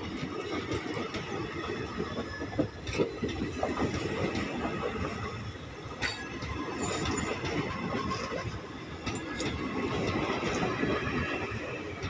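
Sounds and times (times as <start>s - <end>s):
train coaches rumbling past: 0.0s - 12.0s
wheels clattering over rail joints: 0.1s - 12.0s.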